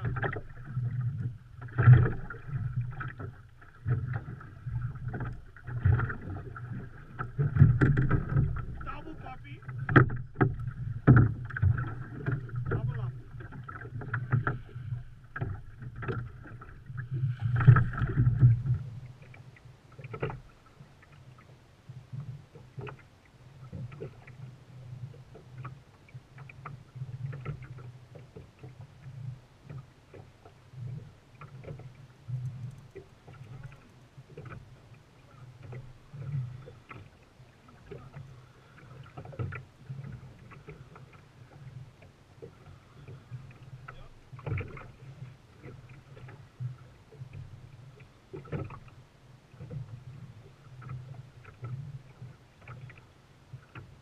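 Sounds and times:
boat motor humming: 0.0 - 54.0.

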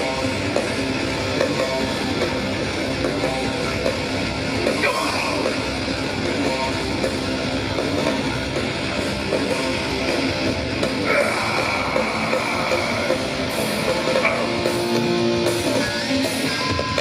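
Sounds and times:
distorted electric guitar: 0.0 - 17.0
live heavy metal band: 0.0 - 17.0.

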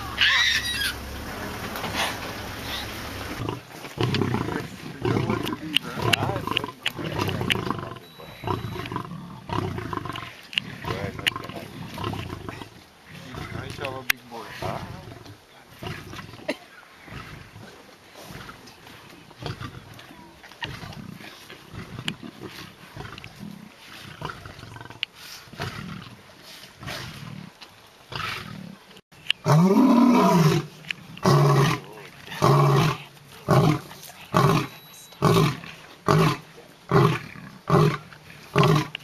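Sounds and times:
lion roaring: 1.9 - 13.9, 29.4 - 39.0.

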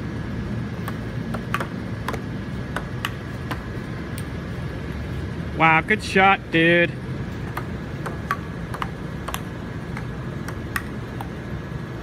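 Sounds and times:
ping-pong ball hitting paddles: 0.8 - 3.7, 7.4 - 11.4.

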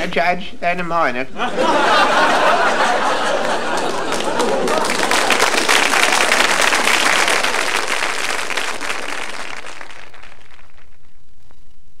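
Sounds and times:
audience applauding: 2.0 - 11.2.

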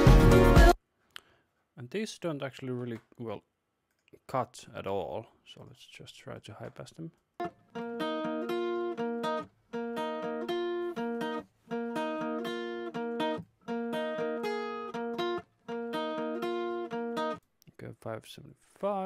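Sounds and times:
acoustic guitar strumming chords: 7.4 - 17.4.

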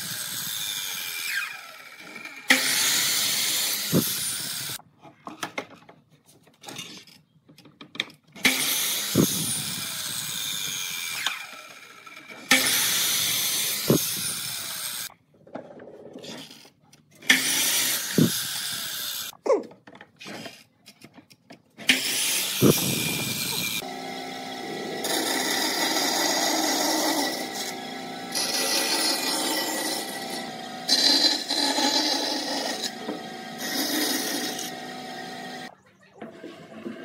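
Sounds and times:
miter saw cutting wood: 0.0 - 4.8, 8.4 - 15.1, 17.3 - 19.3, 21.8 - 35.7.

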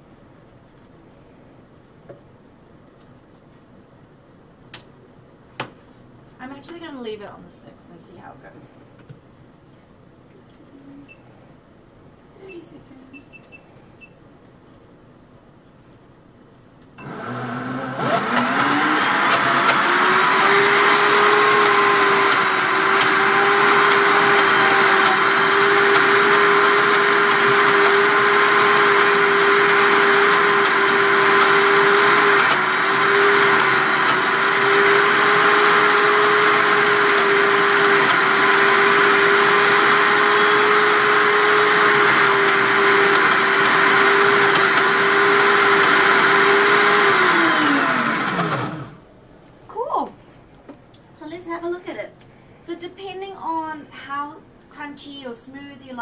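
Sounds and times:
blender motor whining: 17.0 - 49.0.

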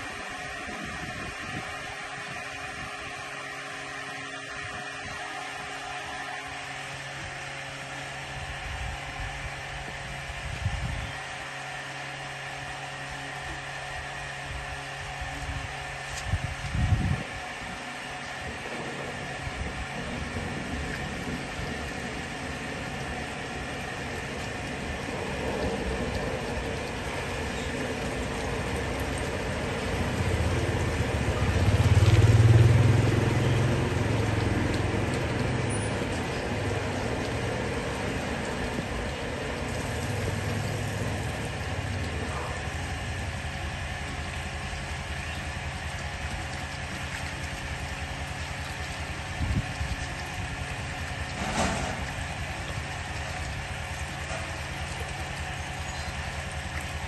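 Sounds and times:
engine running steadily: 0.0 - 57.0
motor humming: 0.0 - 57.0
water gushing and splashing: 15.7 - 57.0.

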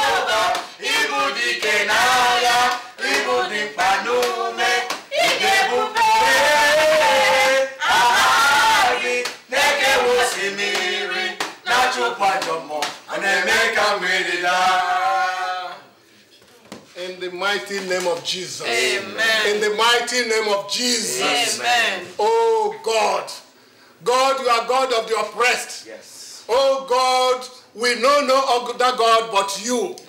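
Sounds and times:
man and woman singing together: 0.0 - 15.9.

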